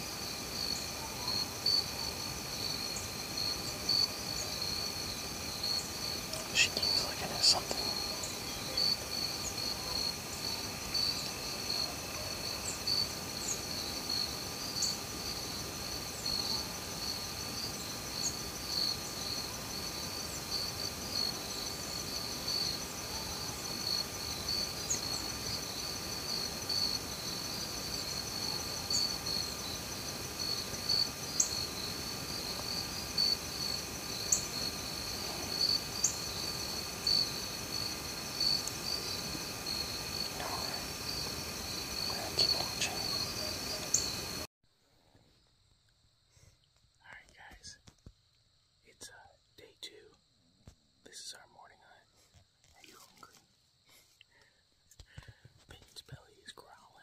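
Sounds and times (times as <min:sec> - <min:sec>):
insect trilling: 0:00.0 - 0:44.5.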